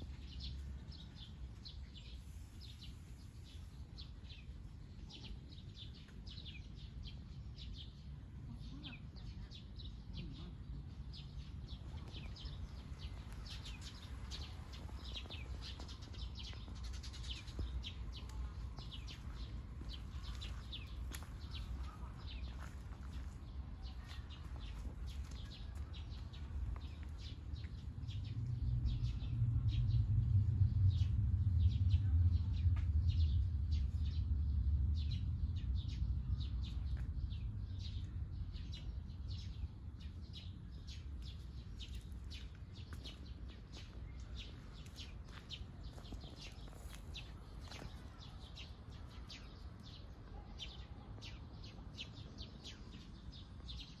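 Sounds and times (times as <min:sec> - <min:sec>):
birds chirping: 0:00.0 - 0:54.0
low rumble: 0:24.6 - 0:48.2.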